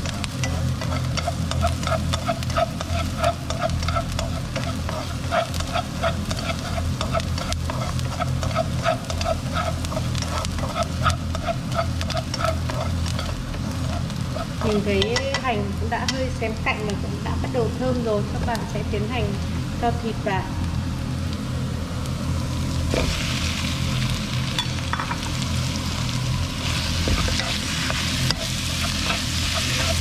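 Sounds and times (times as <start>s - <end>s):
chopsticks scraping and tapping pan: 0.0s - 16.2s, 27.0s - 30.0s
low steady hum: 0.0s - 30.0s
onion sizzling in hot oil: 0.0s - 30.0s.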